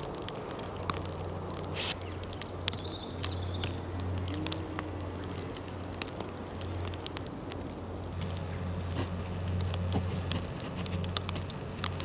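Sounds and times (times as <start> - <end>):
snow pattering: 0.0 - 12.0
bird chirp: 1.8 - 4.5.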